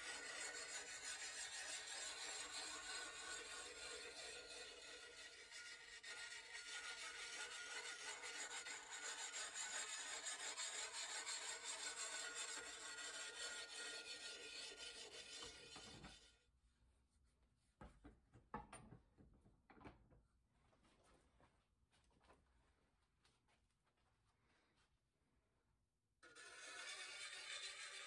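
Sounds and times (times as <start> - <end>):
sharpening stone rasping on blade: 0.0 - 16.1, 26.2 - 28.0.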